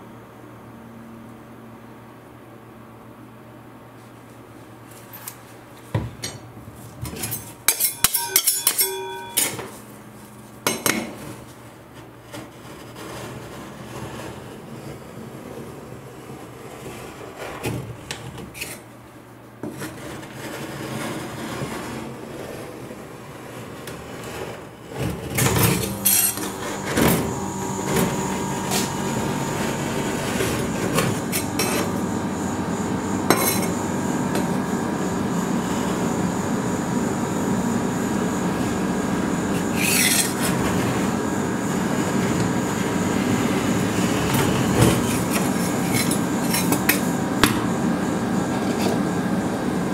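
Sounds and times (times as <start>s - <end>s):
metal spatula scraping steel plate: 7.2s - 9.7s, 25.8s - 26.6s, 33.3s - 33.7s, 39.7s - 40.6s, 44.9s - 47.1s
sharp metal clinks: 7.7s - 9.6s.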